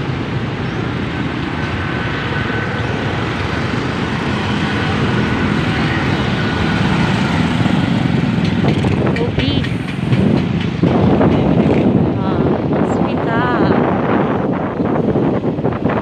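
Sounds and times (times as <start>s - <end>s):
road noise: 0.0s - 16.0s
wind: 0.0s - 16.0s
motorcycle engine running: 3.7s - 12.4s.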